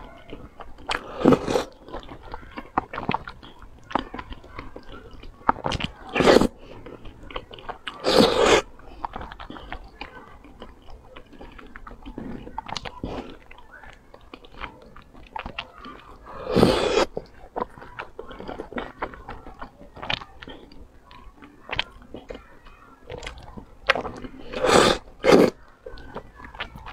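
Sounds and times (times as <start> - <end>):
mouth clicks: 0.0 - 26.9
wet chewing: 0.0 - 26.9
loud noodle slurps: 0.9 - 1.8, 6.1 - 6.8, 8.0 - 8.7, 16.0 - 17.3, 24.4 - 25.6.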